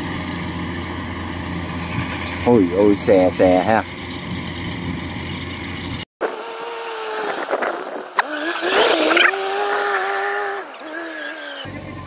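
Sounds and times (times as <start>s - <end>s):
combine harvester running: 0.0s - 6.0s
cart engine whine: 0.0s - 12.0s.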